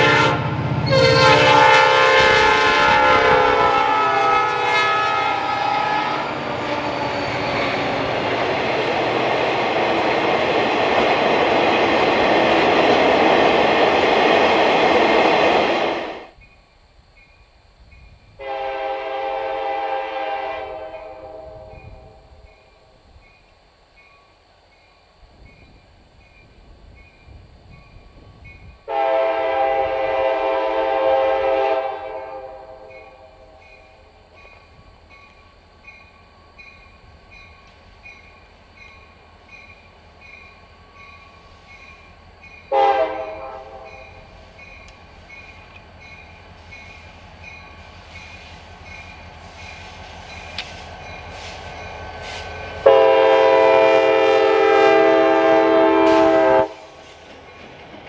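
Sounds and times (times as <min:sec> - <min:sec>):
train air horn blasts: 0:00.0 - 0:08.0, 0:18.4 - 0:22.4, 0:28.9 - 0:33.6, 0:42.7 - 0:44.3, 0:51.4 - 0:57.1
rumble of approaching train: 0:00.0 - 0:58.0.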